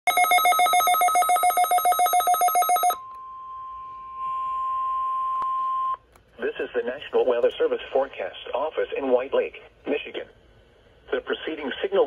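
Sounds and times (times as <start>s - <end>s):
steady warning alarm tone: 0.1s - 3.1s.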